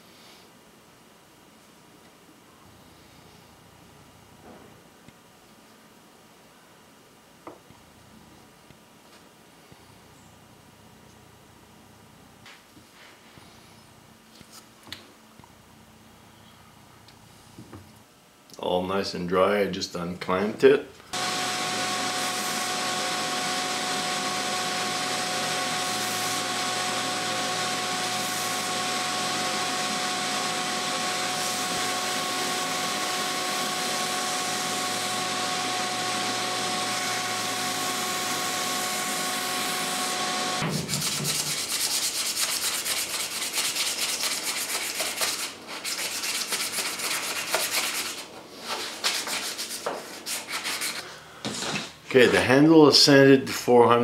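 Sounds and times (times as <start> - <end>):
belt sander motor whine: 21.2 - 40.6
hand sanding with sandpaper: 21.3 - 36.4, 40.6 - 51.0.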